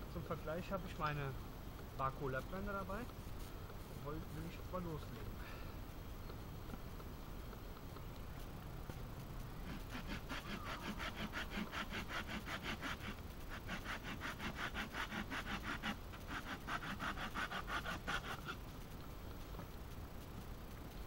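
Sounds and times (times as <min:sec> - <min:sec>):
hand saw cutting wood: 0:09.6 - 0:18.6.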